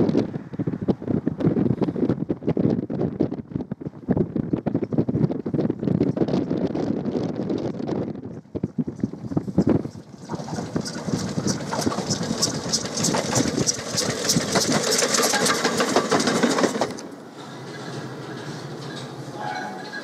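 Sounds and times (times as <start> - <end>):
low rumble: 7.6 - 15.2
steam locomotive chuffing: 9.9 - 20.0.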